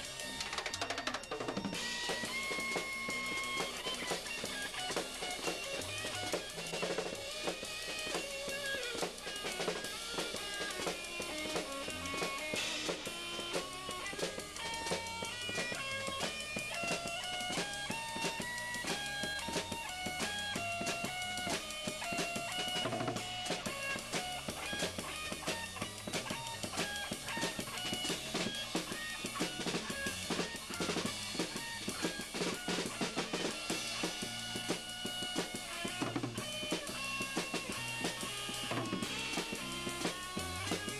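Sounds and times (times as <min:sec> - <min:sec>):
drum kit beaten hard: 0:00.0 - 0:40.9
guitar: 0:00.0 - 0:40.9
rock band playing: 0:00.0 - 0:40.9.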